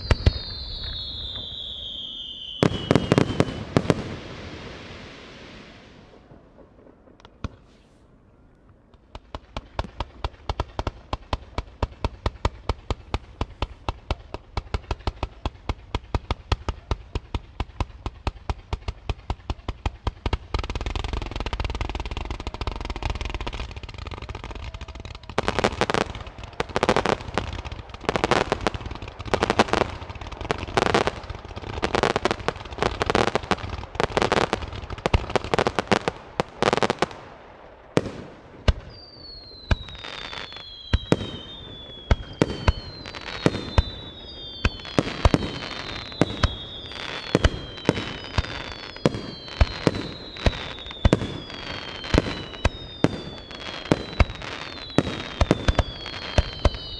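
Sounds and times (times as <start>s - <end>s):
falling firework whistles: 0.0s - 6.2s, 38.0s - 56.9s
firework bangs and crackles: 0.0s - 8.1s, 8.8s - 56.9s
firework bursts: 0.0s - 8.2s, 9.0s - 56.9s.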